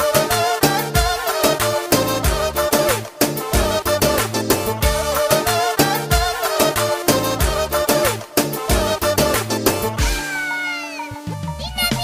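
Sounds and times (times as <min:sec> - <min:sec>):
music with heavy beat: 0:00.0 - 0:12.0.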